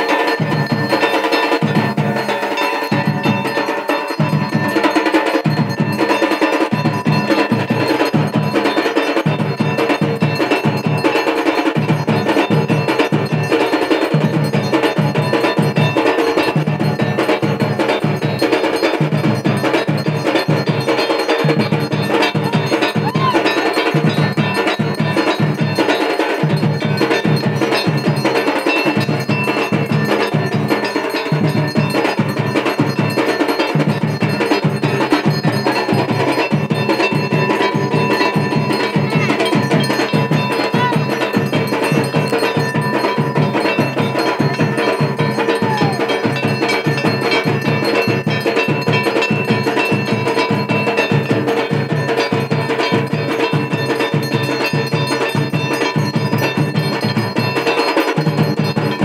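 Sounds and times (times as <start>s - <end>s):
bells ringing: 0.0s - 59.0s
fast drumming: 0.0s - 59.0s.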